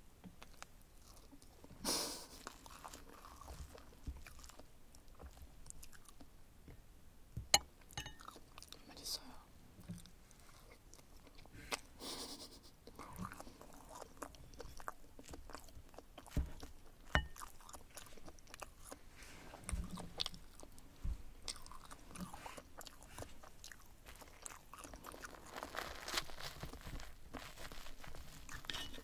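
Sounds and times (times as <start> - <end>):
chewing: 0.3 - 6.3, 7.6 - 8.8, 9.8 - 12.0, 12.8 - 29.0
cutlery scraping a plate: 28.7 - 29.0.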